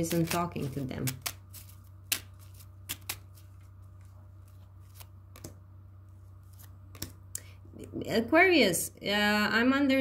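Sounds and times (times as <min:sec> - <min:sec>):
cards snapping on wooden table: 0:01.1 - 0:03.2, 0:04.9 - 0:05.6, 0:06.6 - 0:07.2.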